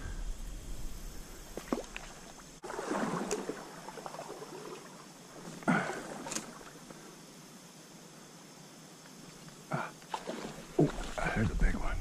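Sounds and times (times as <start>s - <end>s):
steady stream of water: 0.0s - 12.0s
water splashing: 1.6s - 6.8s, 9.8s - 11.9s.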